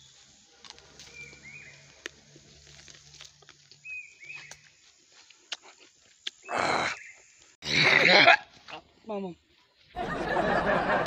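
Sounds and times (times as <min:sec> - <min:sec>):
small bird chirping: 0:03.7 - 0:07.6.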